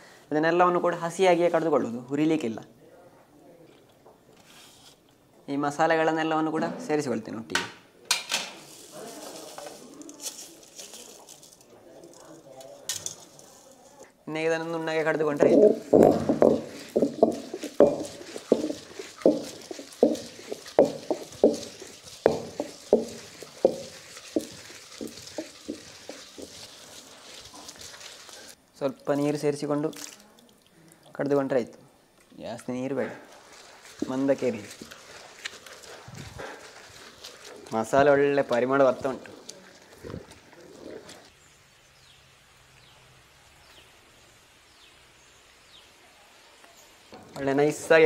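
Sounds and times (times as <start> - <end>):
stone pestle knocking and grating: 15.4 - 28.1.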